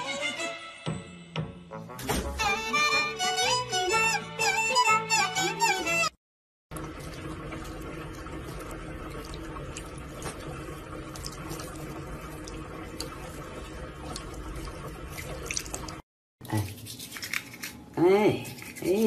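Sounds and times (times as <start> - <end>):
tap water splashing into sink: 6.7 - 16.0
water dripping: 6.7 - 17.6.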